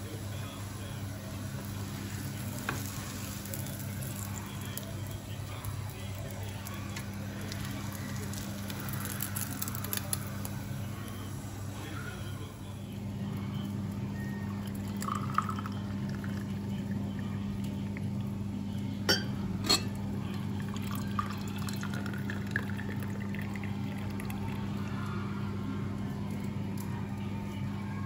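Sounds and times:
tea pouring into a glass: 0:02.4 - 0:10.6, 0:14.4 - 0:18.3, 0:19.8 - 0:25.0.

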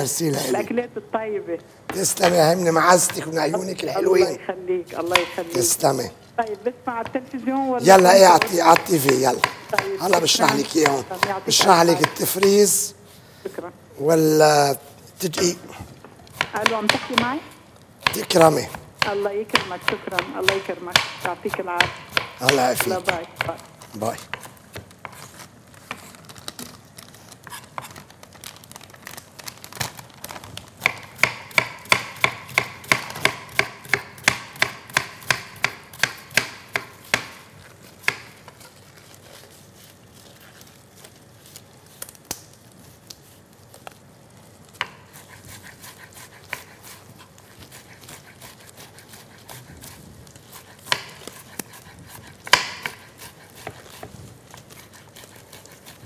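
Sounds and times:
knife chopping on wooden board: 0:01.9 - 0:03.5, 0:05.0 - 0:05.8, 0:07.9 - 0:12.8, 0:16.3 - 0:25.3, 0:30.8 - 0:38.6, 0:44.8 - 0:56.0.

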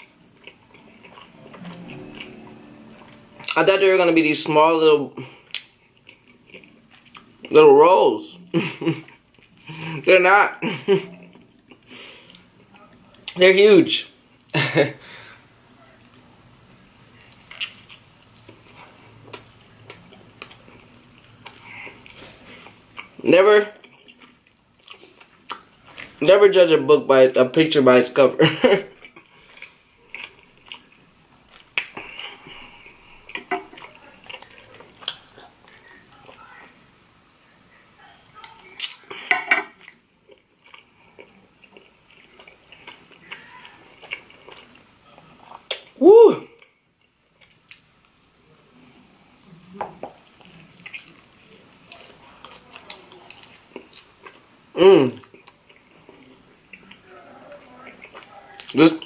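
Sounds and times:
chewing sticky pastry: 0:00.0 - 0:02.3, 0:05.2 - 0:07.6, 0:17.1 - 0:26.2, 0:28.7 - 0:36.7, 0:38.4 - 0:59.0.

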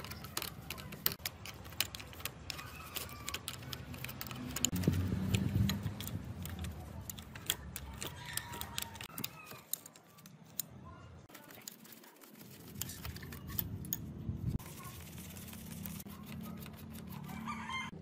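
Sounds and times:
metallic clicks of screwdriver: 0:00.0 - 0:10.8.

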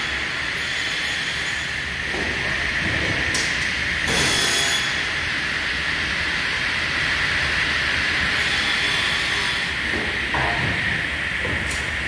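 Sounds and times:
saw running with high hum: 0:00.0 - 0:02.9, 0:03.7 - 0:11.4.

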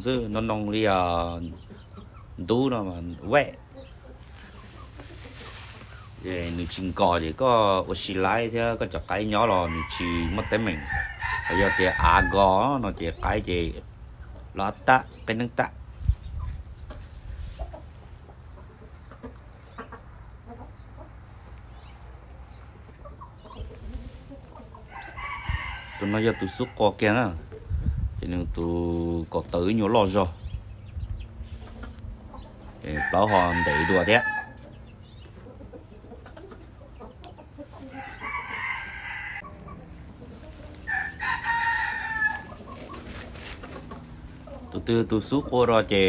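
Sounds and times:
roosters clucking softly: 0:00.0 - 0:46.0
rooster crowing: 0:09.5 - 0:12.4, 0:24.9 - 0:26.8, 0:32.9 - 0:34.6, 0:37.9 - 0:39.8, 0:40.8 - 0:42.6.

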